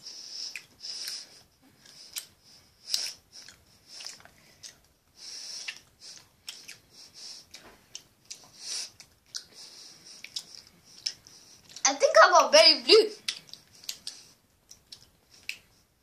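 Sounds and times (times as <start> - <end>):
breaths through nose: 0.0 - 7.7, 8.4 - 11.8
wet chewing clicks: 0.4 - 11.8, 13.2 - 15.7.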